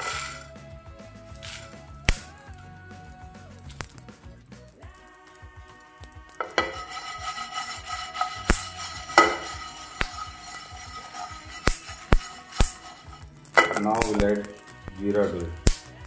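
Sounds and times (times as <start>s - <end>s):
spices stirred in a frying pan: 0.0s - 0.6s, 1.3s - 2.4s, 3.3s - 16.0s
background music: 0.0s - 16.0s
sharp knocks against a pan: 6.4s - 13.0s, 13.6s - 13.9s.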